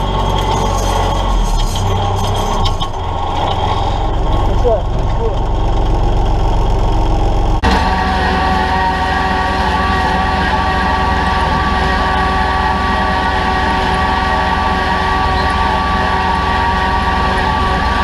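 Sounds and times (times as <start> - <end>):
high whine: 0.0 - 18.0
tractor diesel engine under load: 0.0 - 18.0.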